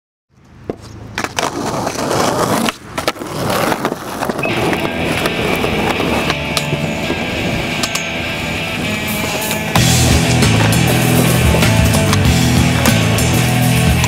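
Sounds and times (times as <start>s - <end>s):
skateboard wheels rolling: 0.4s - 14.0s
skateboard clacks: 0.5s - 8.2s, 8.8s - 14.0s
music: 4.4s - 14.0s
steady high tone: 4.4s - 14.0s.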